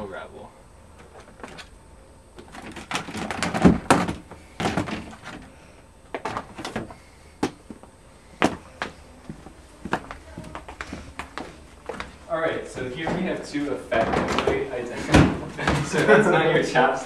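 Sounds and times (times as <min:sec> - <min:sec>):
plastic cases knocking and scraping: 0:02.4 - 0:05.5.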